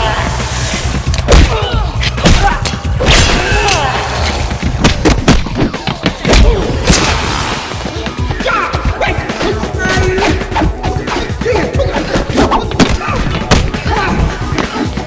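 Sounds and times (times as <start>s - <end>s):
punches and thuds: 1.2s - 3.5s, 4.6s - 7.2s, 12.0s - 14.8s.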